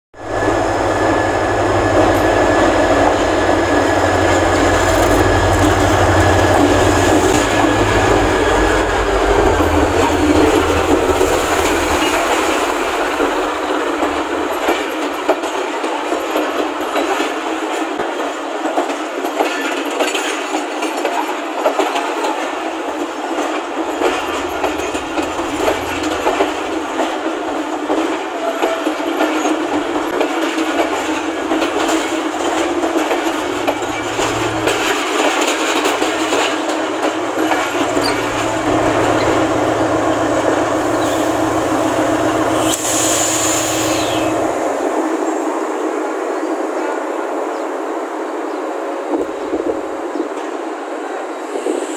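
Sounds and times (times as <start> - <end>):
locomotive whine: 0.1 - 17.0, 22.6 - 47.0
diesel locomotive engine rumble: 0.1 - 19.0, 19.7 - 51.9
wheels clicking over rail joints: 23.4 - 41.6.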